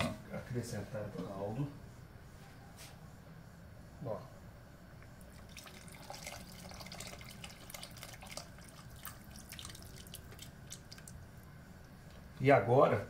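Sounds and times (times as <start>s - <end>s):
broth pouring into a pot: 5.2s - 11.4s
small splashes and drips: 5.3s - 12.0s.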